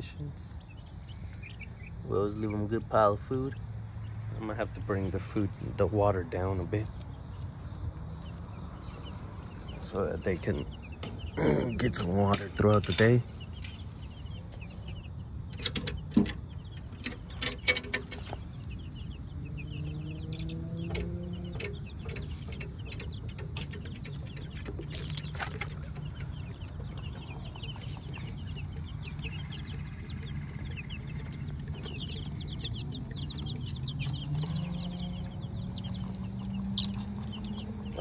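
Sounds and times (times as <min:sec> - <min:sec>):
chicks peeping and clucking: 0:00.0 - 0:38.0
sharp knocks and rattles: 0:10.9 - 0:14.7, 0:15.4 - 0:18.9, 0:20.0 - 0:38.0.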